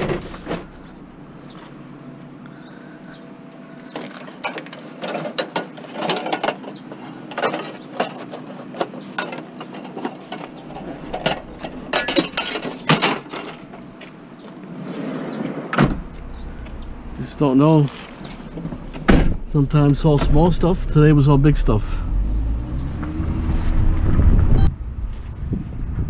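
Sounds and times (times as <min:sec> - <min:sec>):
metallic rattling: 0:10.5 - 0:13.9.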